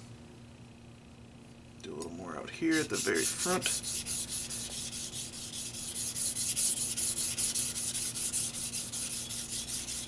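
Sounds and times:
knife scraping on whetstone: 2.7s - 10.0s.

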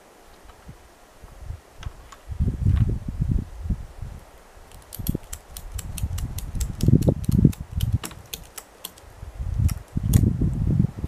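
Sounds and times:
rapid sharp clicks: 4.7s - 10.3s.

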